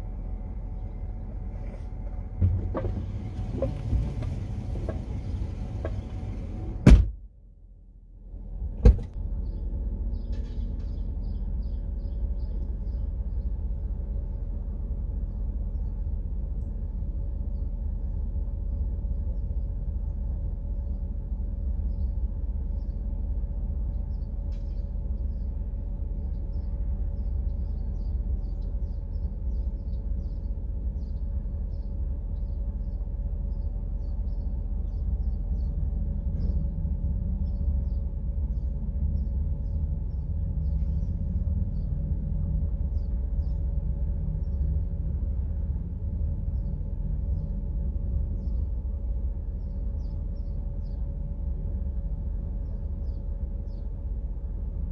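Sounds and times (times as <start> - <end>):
idling vehicle rumble: 0.0 - 54.9.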